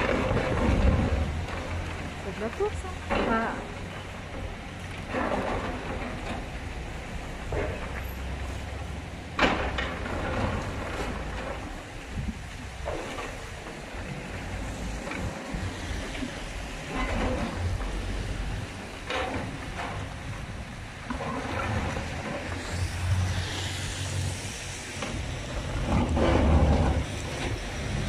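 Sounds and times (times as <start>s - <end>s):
concrete crunching and cracking: 0.0s - 6.7s
excavator engine rumble: 0.0s - 28.0s.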